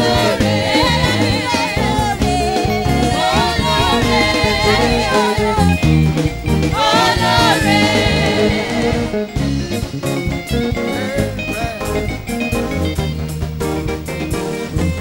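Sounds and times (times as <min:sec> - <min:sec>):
person singing: 0:00.0 - 0:05.8
live gospel band music: 0:00.0 - 0:15.0.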